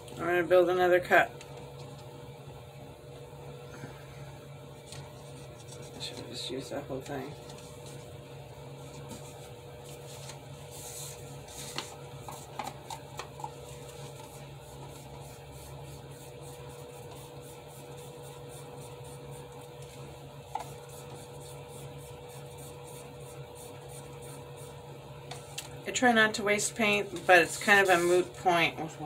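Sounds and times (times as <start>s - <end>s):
low electrical hum: 0.0s - 29.0s.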